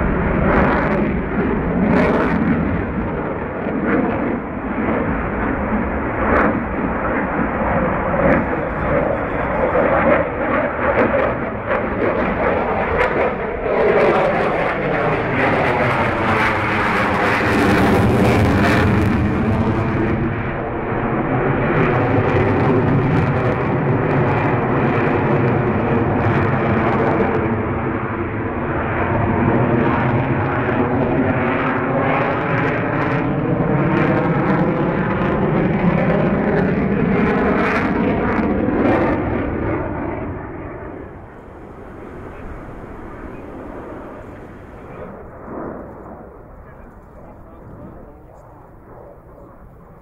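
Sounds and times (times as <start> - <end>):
jet engine crackles: 0.0 - 20.0, 37.2 - 50.0
fighter jet engines roaring: 0.0 - 50.0.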